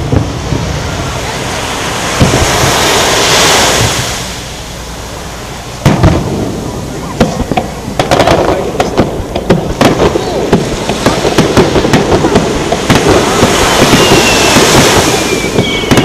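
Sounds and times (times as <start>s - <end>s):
firework rushing hiss: 0.0s - 16.0s
sharp firework cracks and pops: 2.1s - 2.9s, 5.8s - 16.0s
loud firework bang: 2.1s - 4.1s, 5.8s - 16.0s.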